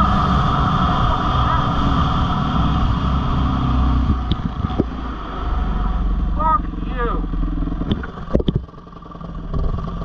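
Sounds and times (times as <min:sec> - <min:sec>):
wind rush on microphone: 0:00.0 - 0:06.3, 0:07.8 - 0:08.7
dirt bike engine running: 0:00.0 - 0:10.0.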